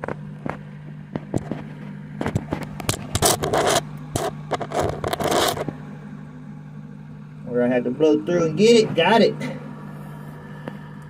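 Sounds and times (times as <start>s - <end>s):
low hum: 0.0s - 11.0s
rough scrapes: 3.0s - 5.7s.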